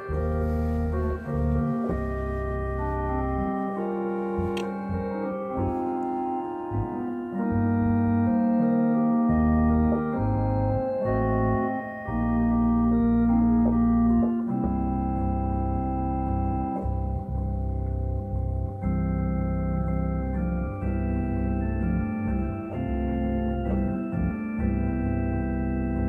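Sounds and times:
organ playing sustained chords: 0.0s - 26.0s.

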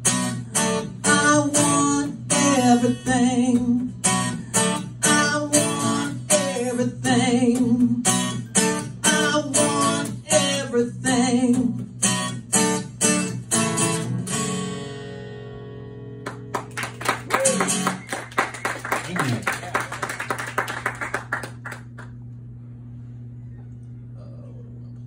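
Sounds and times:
acoustic guitar strumming: 0.0s - 18.6s
man singing: 1.0s - 3.8s, 5.0s - 8.0s, 9.0s - 11.8s.

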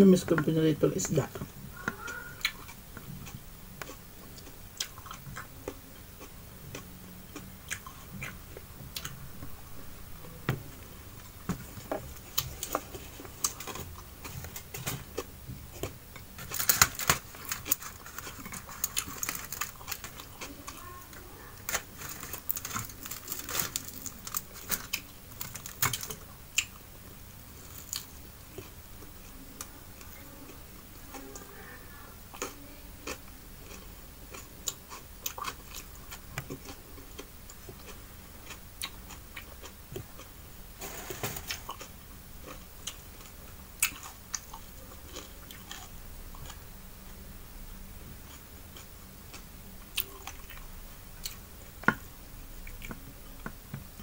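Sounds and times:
chewing and mouth smacks: 2.0s - 9.2s
fingers crinkling foil: 16.4s - 26.2s.

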